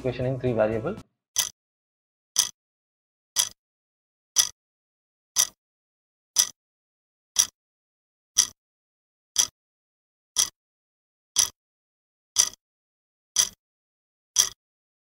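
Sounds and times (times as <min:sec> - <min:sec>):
clock ticking: 0:01.4 - 0:01.6, 0:02.4 - 0:02.6, 0:03.4 - 0:03.6, 0:04.4 - 0:04.6, 0:05.4 - 0:05.6, 0:06.4 - 0:06.6, 0:07.4 - 0:07.6, 0:08.4 - 0:08.6, 0:09.4 - 0:09.6, 0:10.4 - 0:10.6, 0:11.4 - 0:11.6, 0:12.4 - 0:12.6, 0:13.4 - 0:13.6, 0:14.4 - 0:14.6.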